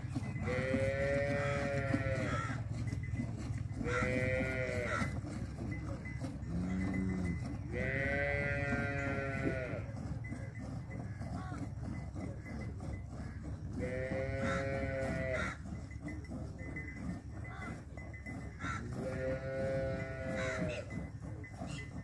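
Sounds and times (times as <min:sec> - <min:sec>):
livestock bleating: 0:00.4 - 0:02.6, 0:03.8 - 0:05.1, 0:06.5 - 0:09.9, 0:13.7 - 0:15.6, 0:18.6 - 0:20.9.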